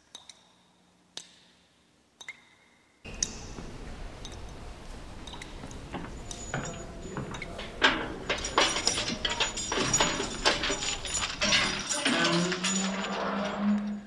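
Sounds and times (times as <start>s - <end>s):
metallic clicks and rattles: 5.2s - 14.0s.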